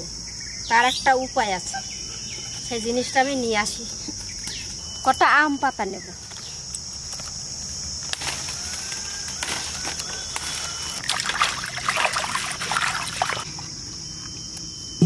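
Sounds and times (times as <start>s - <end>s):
crickets chirring: 0.0s - 15.0s
hands splashing water in a basin: 11.0s - 13.4s.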